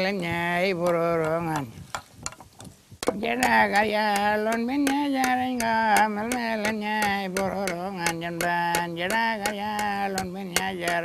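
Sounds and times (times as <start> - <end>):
man singing: 0.0 - 1.8, 3.0 - 11.0
rhythmic sharp clicks: 3.0 - 11.0.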